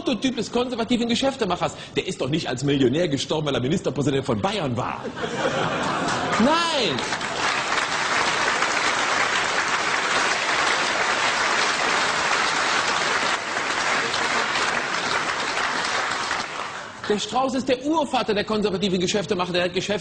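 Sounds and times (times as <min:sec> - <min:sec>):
audience applauding: 0:05.6 - 0:17.3.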